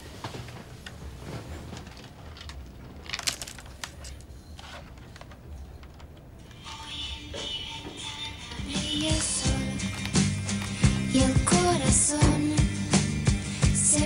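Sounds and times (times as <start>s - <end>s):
clothing and bedding rustling: 0.0s - 5.6s.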